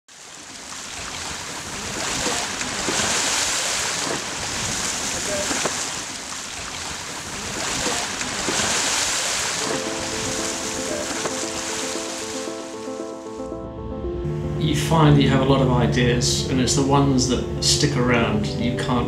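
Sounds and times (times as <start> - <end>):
water rushing along hull: 0.1 - 13.6.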